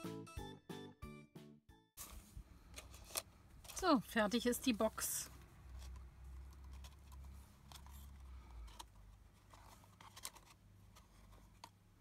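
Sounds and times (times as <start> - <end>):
paper box rustling and clicking: 5.7 - 11.8.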